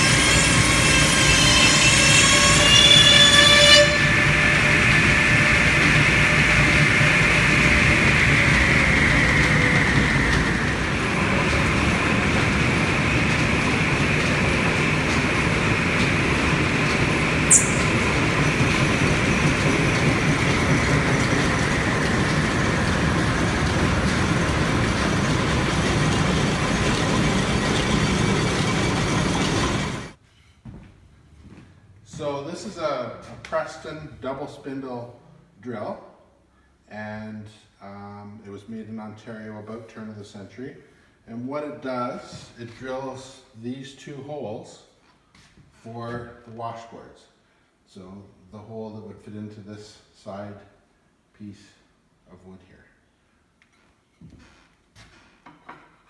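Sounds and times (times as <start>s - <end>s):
brief high squeak: 0.0s - 4.7s, 17.5s - 18.2s
machine whine falling in pitch: 0.0s - 30.1s
line shaft machinery rumbling: 0.0s - 30.2s
high-pitched cutting sound: 17.5s - 18.4s.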